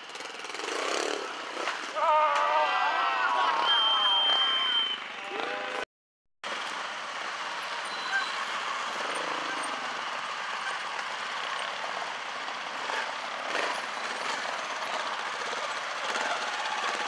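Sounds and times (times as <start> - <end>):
motorcycle engine running: 0.0 - 1.8, 7.0 - 17.0.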